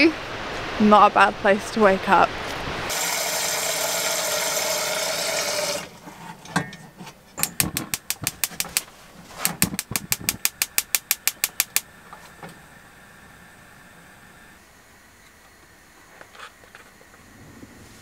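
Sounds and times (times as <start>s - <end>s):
gas hob igniter clicking: 6.5s - 12.6s.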